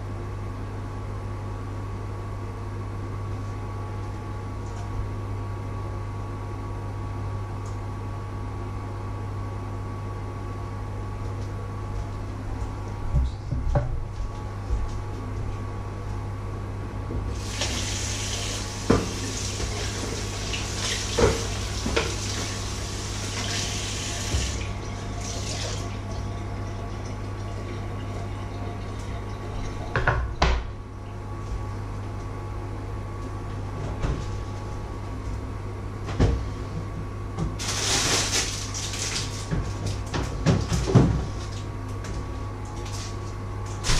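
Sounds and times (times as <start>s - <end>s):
steady low hum: 0.0s - 43.9s
tap running into sink: 18.8s - 20.0s, 24.2s - 24.6s.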